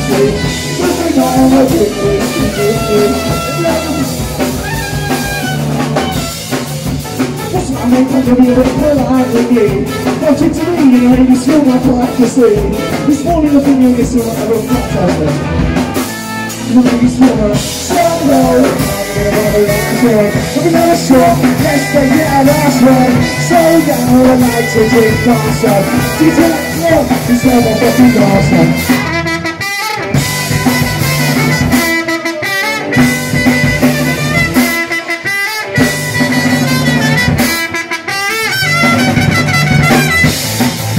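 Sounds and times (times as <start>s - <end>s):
person singing: 0.0s - 5.2s, 7.4s - 15.9s, 16.5s - 29.2s
live rock band playing: 0.0s - 40.9s.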